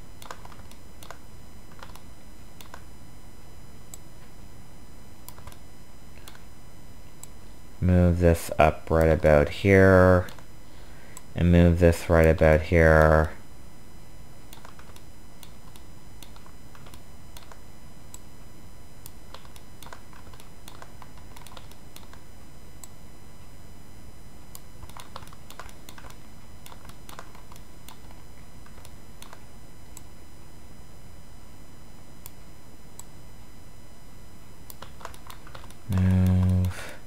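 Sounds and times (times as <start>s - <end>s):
low background hum: 0.0s - 37.0s
keyboard and mouse clicks: 0.2s - 2.9s, 5.2s - 5.6s, 6.2s - 6.4s, 14.5s - 18.3s, 19.1s - 22.2s, 24.6s - 29.4s, 34.7s - 36.8s.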